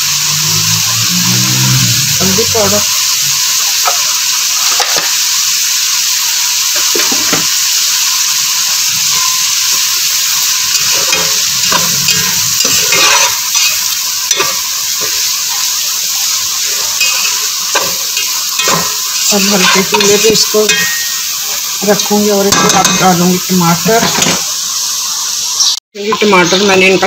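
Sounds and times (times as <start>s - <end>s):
onions sizzling in hot oil: 0.0s - 27.0s
spatula scraping a pot: 10.8s - 15.6s, 16.6s - 21.1s.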